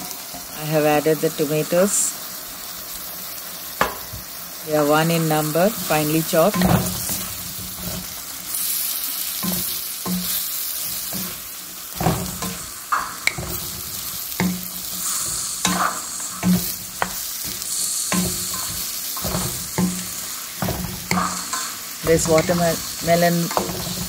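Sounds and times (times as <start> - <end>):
vegetables sizzling in oil: 0.0 - 24.0
wooden spatula scraping pan: 5.7 - 8.8, 9.4 - 24.0.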